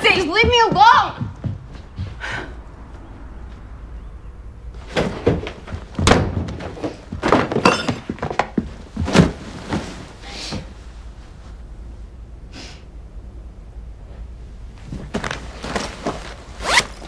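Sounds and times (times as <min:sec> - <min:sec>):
footsteps: 0:00.0 - 0:03.7
thuds and knocks: 0:00.2 - 0:02.2, 0:04.9 - 0:10.0.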